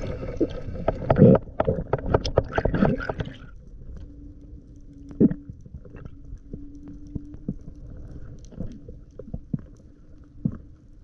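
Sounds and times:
muffled underwater rushing: 0.0 - 4.2
faint steady hum: 0.0 - 11.0
underwater knocks and clicks: 0.1 - 4.2, 5.0 - 10.8.

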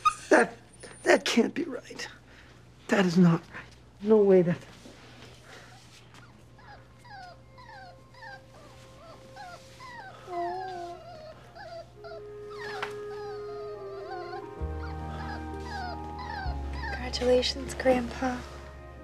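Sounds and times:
newborn puppy squeaking: 0.0 - 1.2, 6.2 - 17.6.

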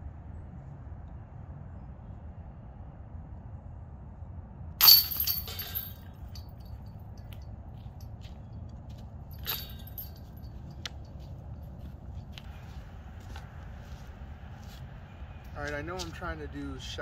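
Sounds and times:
disc hitting basket chains: 4.8 - 6.7, 9.3 - 10.7
light metal clink: 4.8 - 7.4, 9.3 - 11.2.

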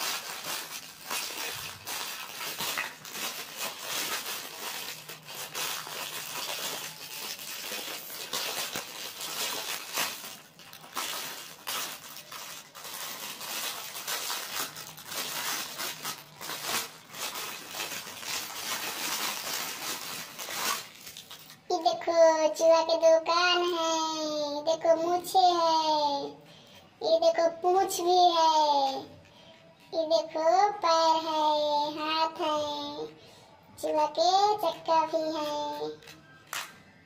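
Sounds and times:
plastic wrapping crinkling: 0.0 - 21.8.

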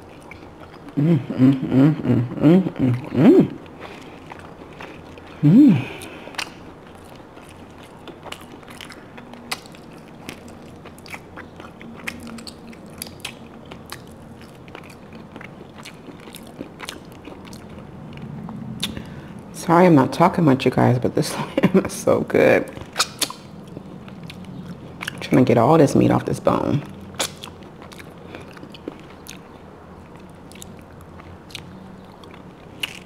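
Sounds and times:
chewing and biting meat: 0.0 - 1.0, 2.9 - 19.1, 22.7 - 25.4, 26.8 - 33.0
person humming: 1.0 - 3.6, 5.4 - 6.2
wet mouth clicks and smacks: 8.2 - 14.2, 18.8 - 19.0, 22.8 - 25.2, 27.2 - 29.5.

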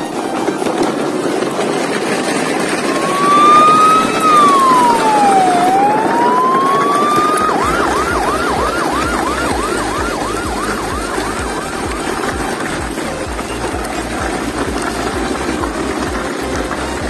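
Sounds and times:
electronic siren wailing and yelping: 2.9 - 13.1.

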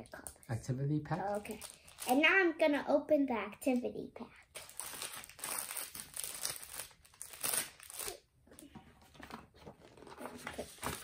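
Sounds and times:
packet tearing and wrapping crinkling: 1.3 - 2.2, 4.5 - 8.2.

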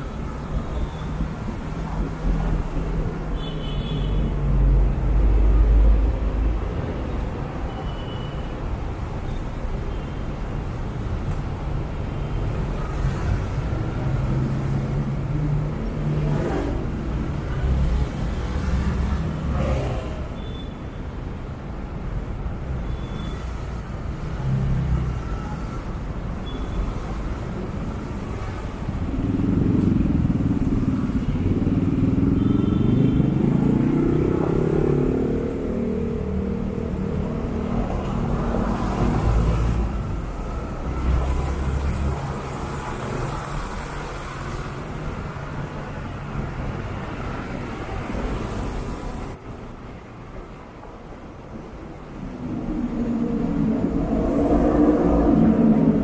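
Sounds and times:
traffic noise: 0.0 - 56.0
engine revving: 52.4 - 56.0.

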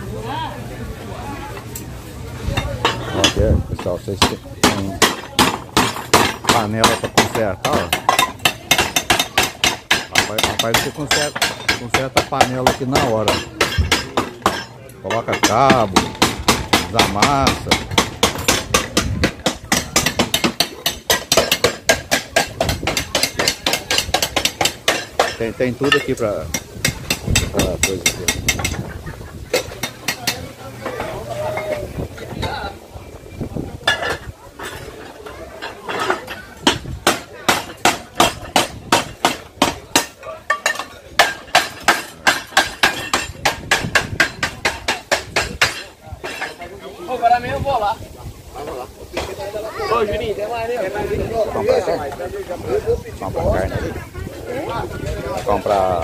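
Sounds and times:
hammer blows on metal: 2.9 - 28.9, 36.2 - 46.5.

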